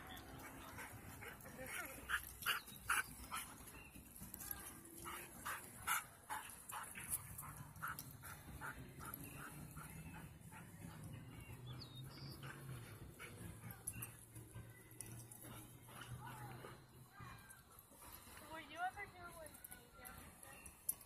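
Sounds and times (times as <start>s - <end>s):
dogs barking: 5.1s - 14.1s.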